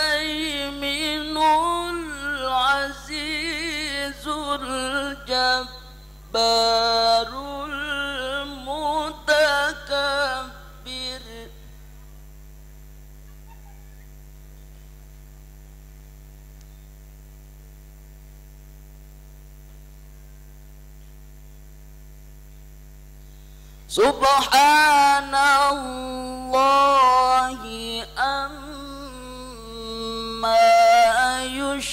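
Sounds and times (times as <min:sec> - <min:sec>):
man chanting into a microphone: 0:00.0 - 0:11.7, 0:23.9 - 0:31.9
electrical mains hum: 0:00.0 - 0:31.9.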